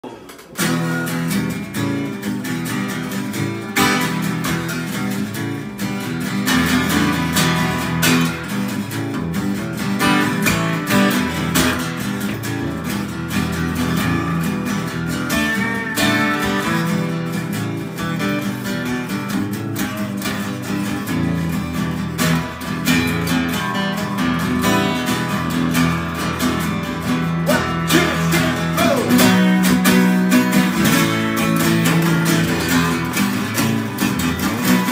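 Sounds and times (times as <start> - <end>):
acoustic guitar strumming: 0.0 - 34.9
electric guitar playing: 0.0 - 34.9.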